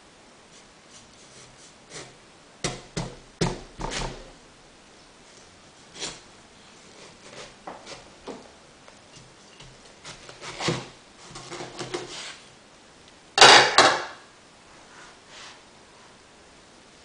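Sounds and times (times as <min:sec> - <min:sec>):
knife cutting melon on board: 0:06.9 - 0:08.4, 0:09.2 - 0:12.3.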